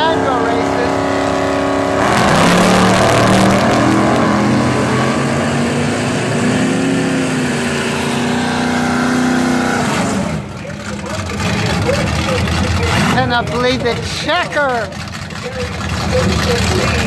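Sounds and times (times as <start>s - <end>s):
drag racing cars accelerating: 0.0s - 17.0s.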